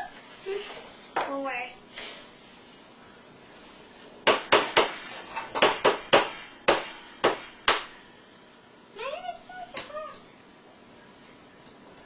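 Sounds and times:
sharp knocks: 4.2s - 5.0s, 5.6s - 7.9s.

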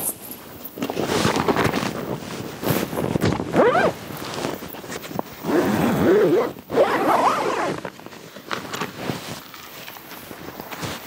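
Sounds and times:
zipper being pulled: 3.5s - 8.0s.

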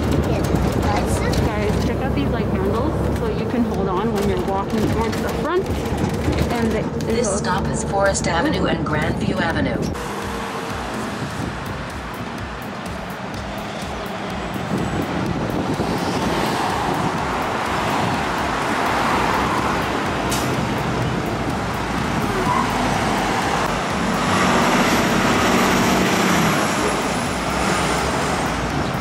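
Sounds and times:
bus engine passing close: 0.0s - 29.0s
street traffic: 0.0s - 29.0s.

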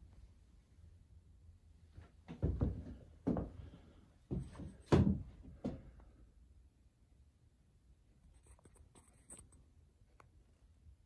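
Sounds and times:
dull thumps and knocks: 2.3s - 3.6s, 4.3s - 5.8s.

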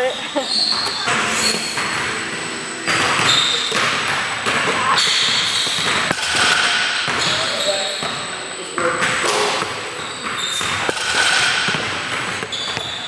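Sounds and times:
basketball bouncing on court: 0.6s - 8.2s, 8.8s - 13.0s.

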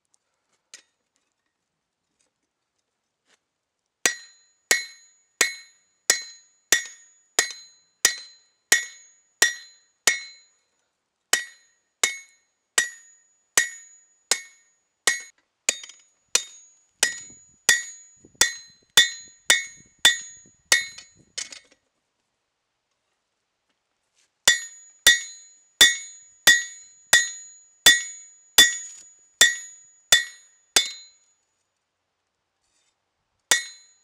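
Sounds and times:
hammer striking blade on anvil: 4.1s - 10.5s, 11.4s - 21.2s, 24.5s - 31.2s, 33.5s - 34.0s.

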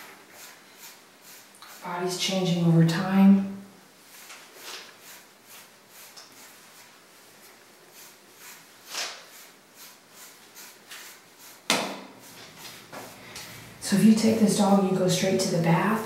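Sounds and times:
brush rasping over dog coat: 0.2s - 1.9s, 4.1s - 11.6s.

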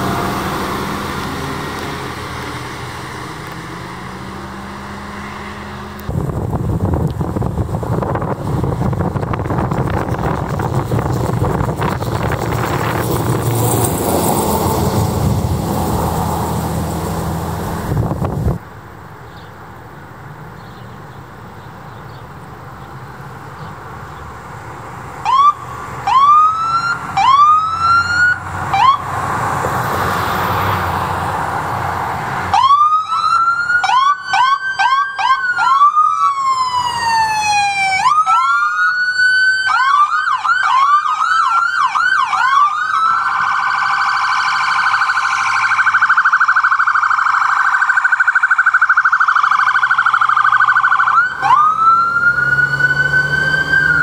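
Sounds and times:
emergency vehicle siren: 11.0s - 18.5s, 25.2s - 31.7s, 32.4s - 54.0s.

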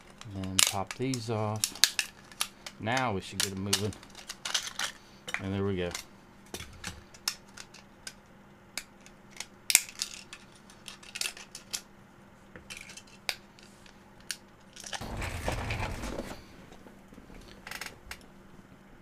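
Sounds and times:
rustling handling noise: 14.6s - 17.8s.

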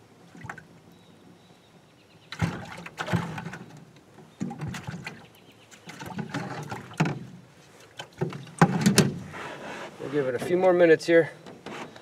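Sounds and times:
plastic bucket lid pried off: 8.2s - 9.3s.

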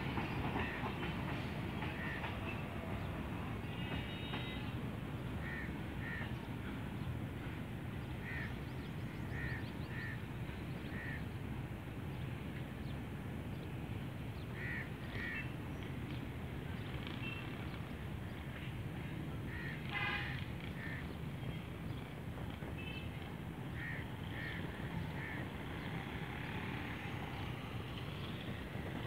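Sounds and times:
freight train rumbling: 0.0s - 29.0s
crows cawing: 23.8s - 24.6s.

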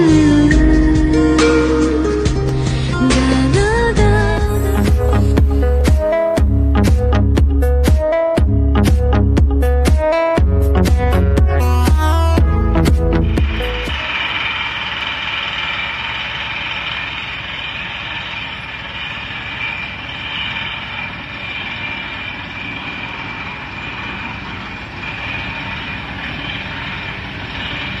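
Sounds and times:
drilling rig engine and air noise: 0.0s - 7.6s, 12.2s - 28.0s
fast rattling pulse: 12.7s - 28.0s.

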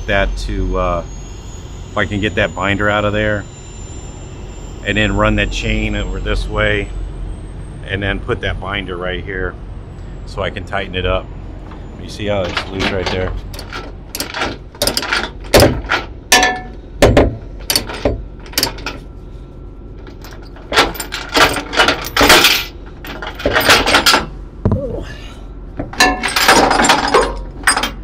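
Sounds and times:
chain links clanking: 12.2s - 16.8s, 17.6s - 19.0s, 20.0s - 24.3s, 25.9s - 28.0s
metallic clinks and knocks: 12.4s - 19.0s, 20.0s - 24.3s, 25.8s - 28.0s.

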